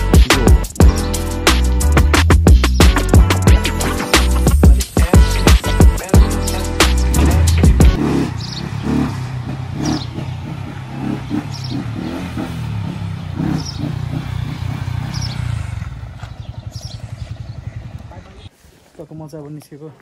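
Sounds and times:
background music: 0:00.0 - 0:09.1
motorcycle engine at low revs: 0:07.2 - 0:18.5.

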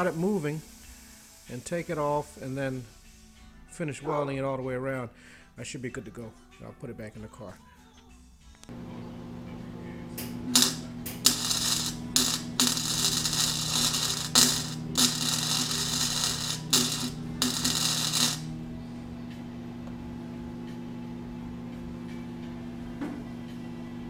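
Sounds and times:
steady low hum: 0:08.7 - 0:24.0
electric arc welding crackle: 0:10.2 - 0:18.8.

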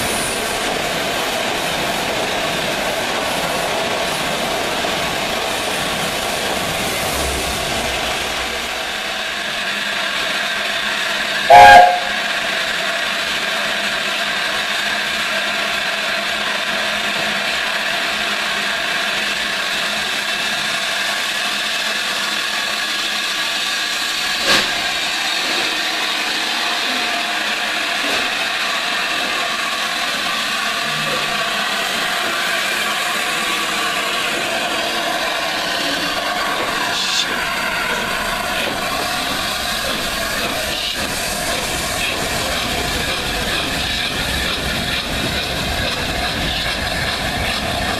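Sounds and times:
steam hissing: 0:00.0 - 0:47.9
loud steam blast: 0:06.5 - 0:09.6, 0:11.5 - 0:12.2.

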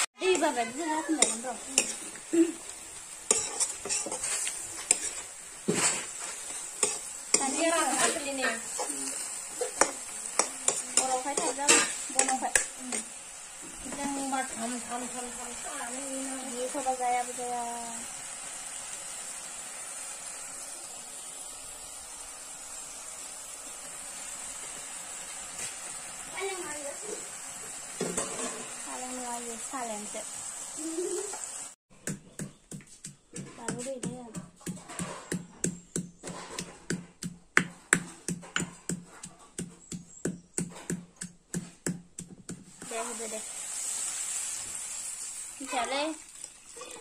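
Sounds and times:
frying sizzle: 0:00.0 - 0:31.8, 0:33.4 - 0:47.0
metal ladle scraping a wok: 0:00.2 - 0:13.2, 0:28.0 - 0:28.8.

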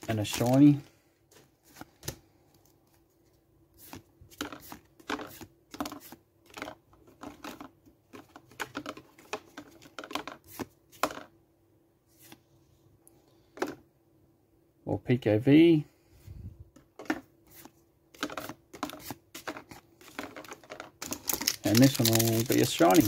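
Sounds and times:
cards flipping with papery swishes: 0:03.8 - 0:06.2, 0:12.1 - 0:12.5, 0:17.5 - 0:20.5.

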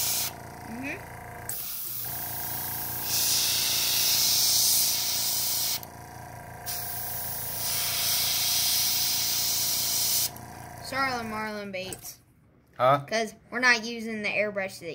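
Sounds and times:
airbrush hissing: 0:00.0 - 0:00.4, 0:01.5 - 0:05.9, 0:06.6 - 0:10.4.

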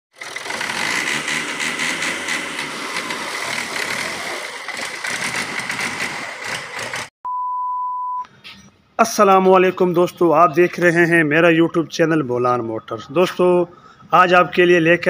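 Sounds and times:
tractor diesel engine running: 0:00.1 - 0:07.1.

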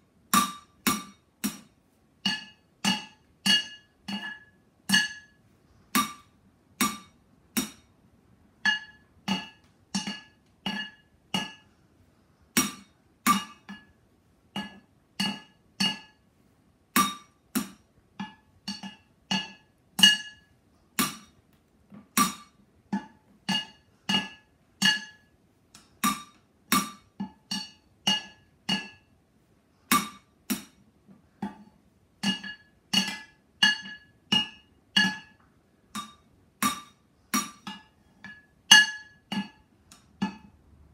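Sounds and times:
drumsticks beating cooking pots: 0:00.2 - 0:08.0, 0:08.6 - 0:11.8, 0:12.5 - 0:16.2, 0:16.9 - 0:29.1, 0:29.9 - 0:40.9.

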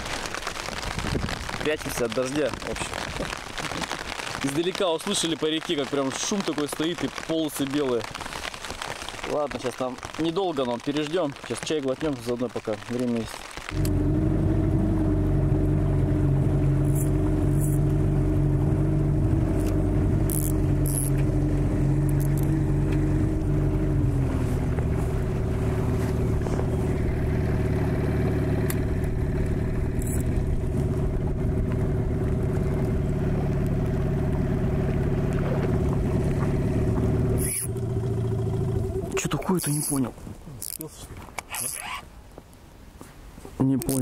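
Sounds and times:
outboard motor running: 0:13.7 - 0:40.0.

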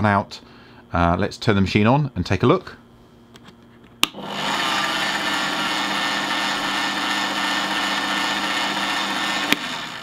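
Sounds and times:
bench drill motor whining: 0:04.0 - 0:10.0.

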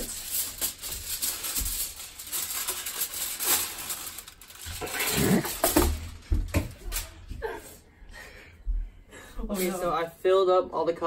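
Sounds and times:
aluminum foil crinkling: 0:00.0 - 0:07.3.

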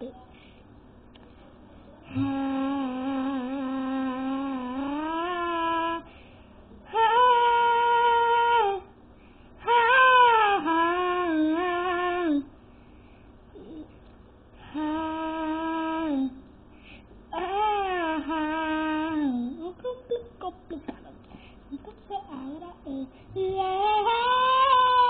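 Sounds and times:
girl singing long held notes: 0:02.0 - 0:06.1, 0:06.8 - 0:09.0, 0:09.6 - 0:12.6, 0:14.6 - 0:16.5, 0:17.3 - 0:25.0.

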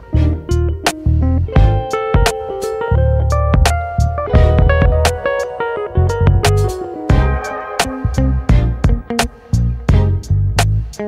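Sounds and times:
music with bass and drums: 0:00.0 - 0:05.4, 0:06.0 - 0:07.4, 0:08.1 - 0:11.0.

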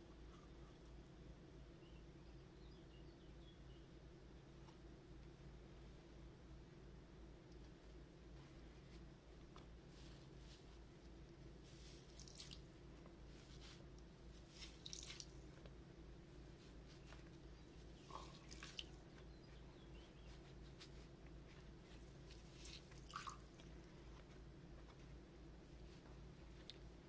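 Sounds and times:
wet drips and squishes: 0:11.7 - 0:12.8, 0:13.5 - 0:15.7, 0:17.9 - 0:19.2, 0:22.2 - 0:23.8.

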